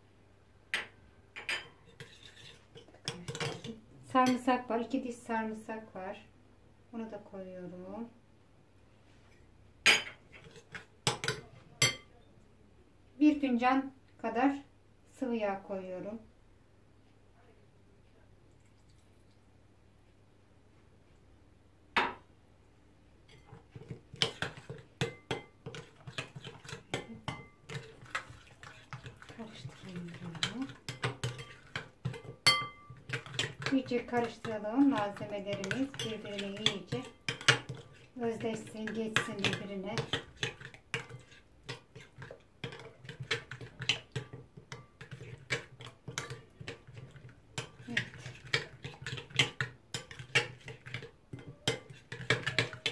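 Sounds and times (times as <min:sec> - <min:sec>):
metal spoon stirring in glass bowl: 0:01.4 - 0:04.5, 0:23.3 - 0:52.9.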